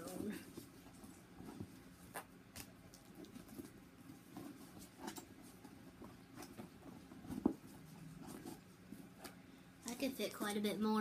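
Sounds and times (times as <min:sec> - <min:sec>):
soft rustles: 0:00.0 - 0:10.7.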